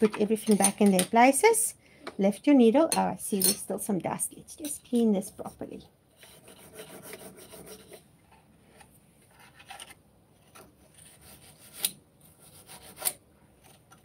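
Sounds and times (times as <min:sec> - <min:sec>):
brush scrubbing metal: 0:06.2 - 0:08.0.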